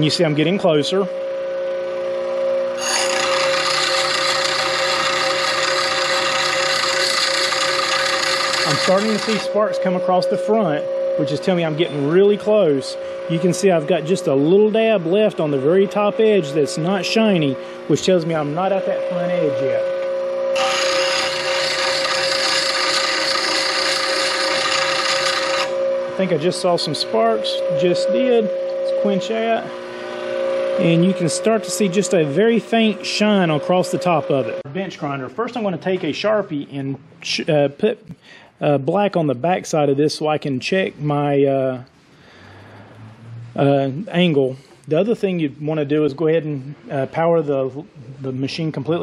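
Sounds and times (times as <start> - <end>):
bench grinder motor hum: 2.7 - 9.6, 19.9 - 26.2
steel rasping on grinding wheel: 2.8 - 9.6, 20.6 - 25.8.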